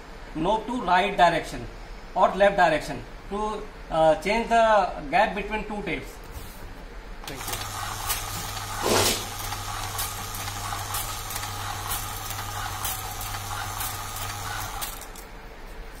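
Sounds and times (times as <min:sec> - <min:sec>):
tape dispenser motor hum: 0:07.2 - 0:15.4
short loud rasp: 0:08.8 - 0:09.3.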